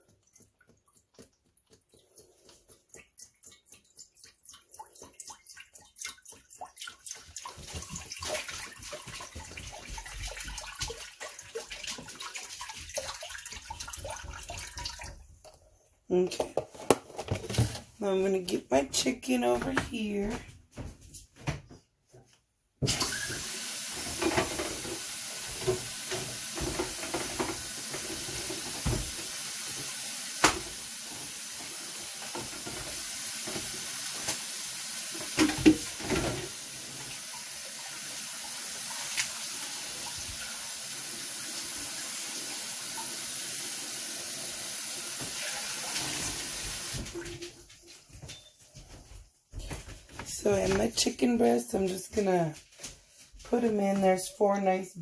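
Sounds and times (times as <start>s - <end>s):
tap running into sink: 22.8s - 34.5s, 35.1s - 37.5s, 44.9s - 47.4s
knocks and clatter of dishes: 24.0s - 29.3s, 30.4s - 30.8s, 32.2s - 34.4s, 35.2s - 36.6s.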